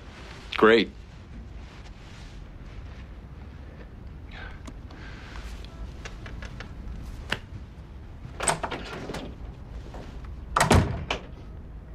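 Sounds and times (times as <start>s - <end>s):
low room hum: 0.0s - 11.9s
door clicks and knocks: 8.4s - 9.4s, 10.6s - 11.4s
door clunk: 10.6s - 11.4s.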